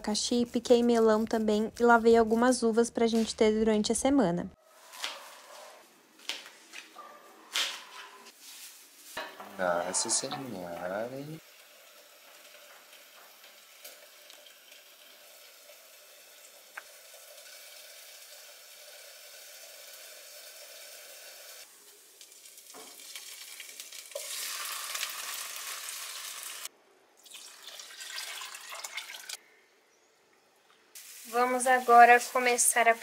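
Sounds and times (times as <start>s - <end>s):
chicken sizzling in a frying pan: 10.3s - 26.7s, 31.0s - 33.0s.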